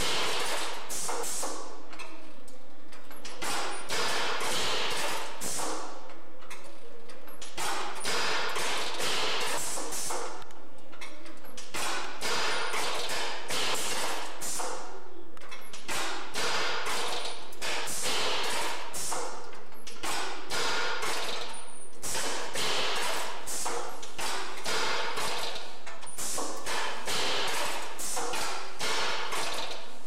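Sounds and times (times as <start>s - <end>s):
machine knocking and clanking: 0.0s - 30.0s.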